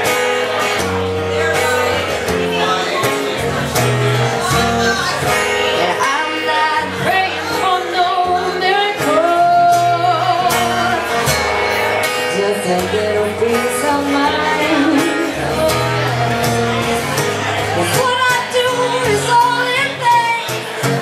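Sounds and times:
acoustic guitar: 0:00.0 - 0:21.0
woman singing into a microphone: 0:03.8 - 0:21.0.

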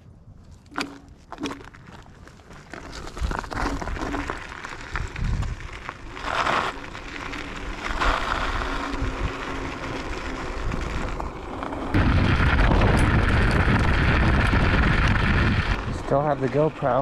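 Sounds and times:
rattles and knocks over stones: 0:00.5 - 0:05.6
scooter rumbling over gravel: 0:00.7 - 0:17.0.

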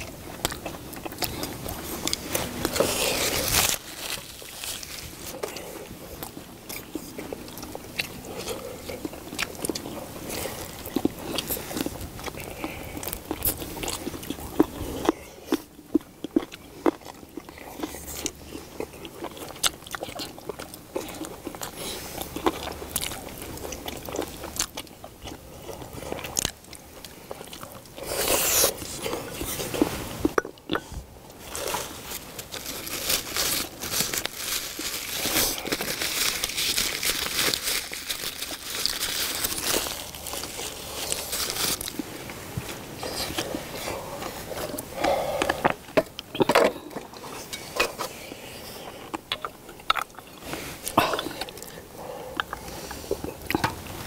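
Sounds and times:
people chewing: 0:00.0 - 0:54.0
paper tissue crinkling: 0:01.7 - 0:05.8, 0:31.4 - 0:44.5.

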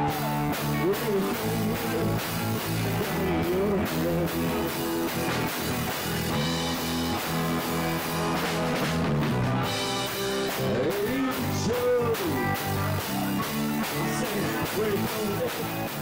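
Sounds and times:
person singing: 0:00.0 - 0:05.4, 0:10.4 - 0:16.0
drum kit: 0:00.0 - 0:16.0
electric guitar: 0:00.0 - 0:16.0.

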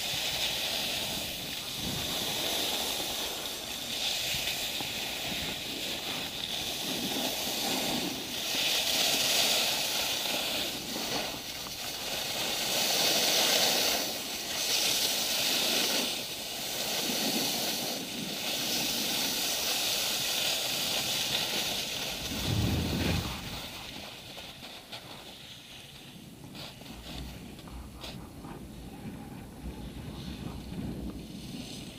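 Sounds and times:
skis scraping over snow: 0:00.0 - 0:31.9
low rumble: 0:22.1 - 0:24.0.

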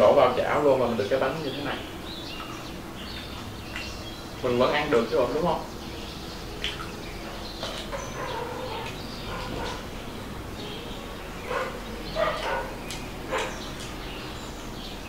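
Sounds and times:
dog barking: 0:07.9 - 0:09.9, 0:11.4 - 0:13.6.

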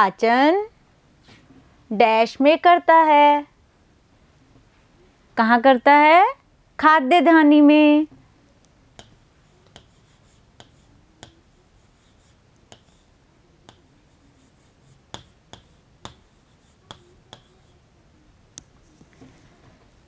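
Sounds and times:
pen tapping on whiteboard screen: 0:08.9 - 0:17.7.

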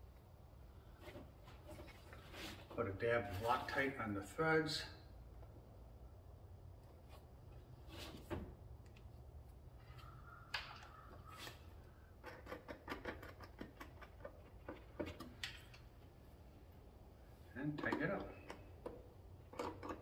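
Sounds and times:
clicks and scrapes of screw threading: 0:12.1 - 0:15.9, 0:17.8 - 0:20.0.

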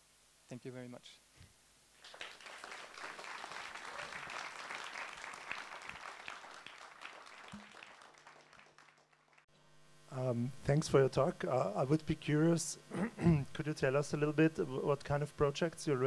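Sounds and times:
audience applauding: 0:02.0 - 0:09.4.

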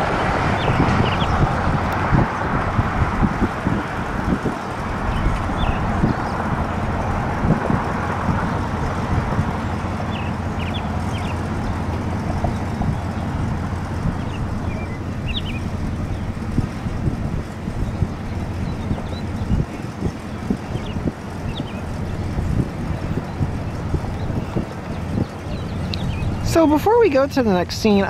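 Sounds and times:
rumble of passing vehicles: 0:00.0 - 0:28.0
high bird chirps: 0:00.5 - 0:01.4, 0:05.1 - 0:06.4, 0:09.7 - 0:11.5, 0:13.9 - 0:16.4, 0:17.8 - 0:26.5.

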